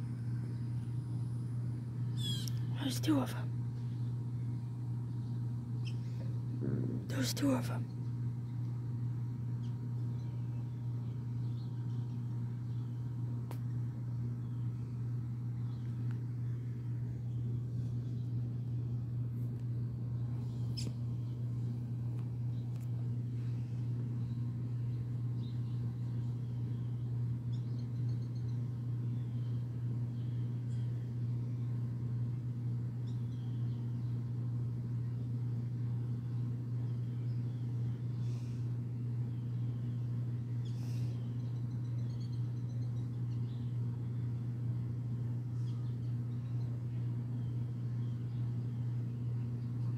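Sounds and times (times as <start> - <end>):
low machine hum: 0.0 - 49.9
faint bird calls: 2.1 - 2.8.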